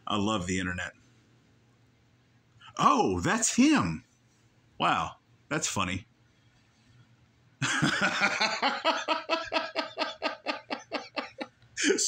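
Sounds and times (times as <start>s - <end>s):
person laughing: 7.6s - 11.5s.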